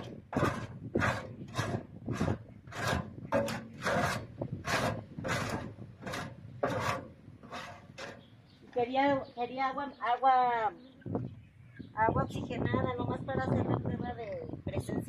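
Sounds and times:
tool scraping soil in wheelbarrow: 0.0s - 8.3s.

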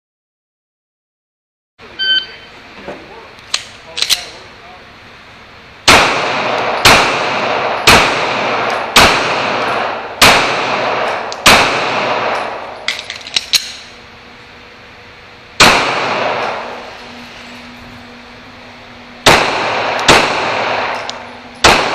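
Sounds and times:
pistol shots echoing indoors: 5.8s - 14.0s, 15.6s - 16.9s, 19.2s - 21.9s.

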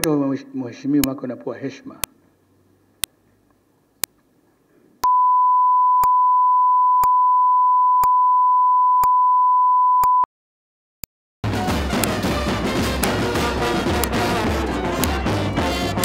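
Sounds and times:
electronic test tone: 5.0s - 10.3s
music with brass: 11.4s - 16.0s.

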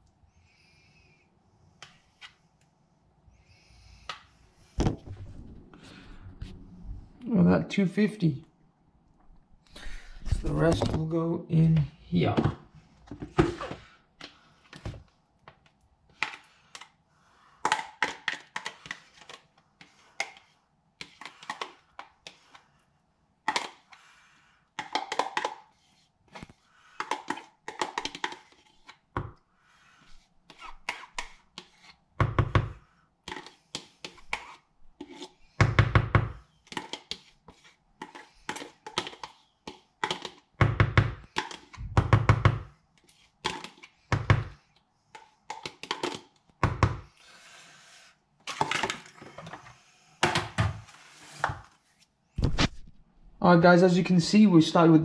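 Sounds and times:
spoon scraping plastic tub: 17.5s - 22.8s, 24.8s - 29.2s, 29.8s - 35.8s, 36.4s - 40.6s, 41.2s - 42.0s, 43.0s - 46.4s
spoon knocking on plastic: 27.0s - 28.5s, 38.0s - 42.7s, 43.4s - 44.6s.

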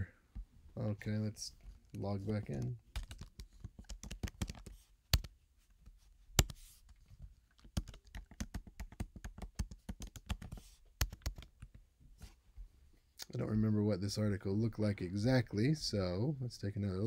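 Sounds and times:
typing on computer keyboard: 2.6s - 5.3s, 7.6s - 11.7s.

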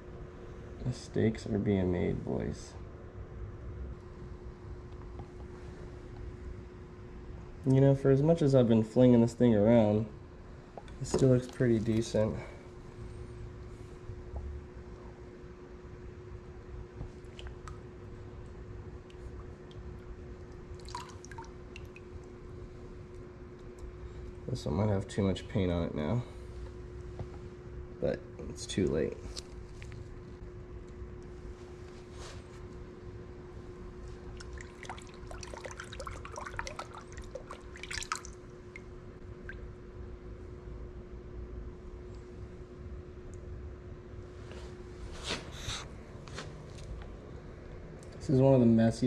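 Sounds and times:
steady hum: 0.0s - 49.0s
water dripping: 17.2s - 17.9s, 19.0s - 22.4s, 34.2s - 39.8s
water splashing in a tub: 20.4s - 22.3s, 34.2s - 39.7s.

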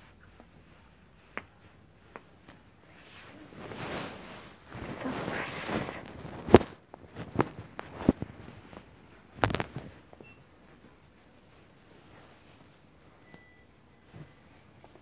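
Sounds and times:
rustling: 0.0s - 15.0s
clicks and knocks of goods handled: 6.0s - 10.2s.

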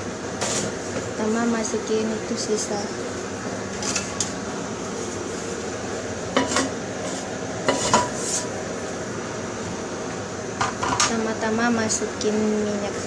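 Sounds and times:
frying pan knocks and scrapes: 6.4s - 8.4s.

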